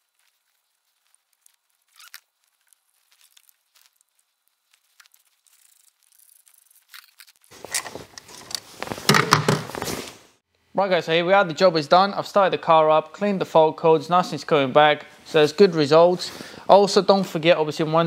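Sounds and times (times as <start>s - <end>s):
handling noise: 2.9s - 10.2s.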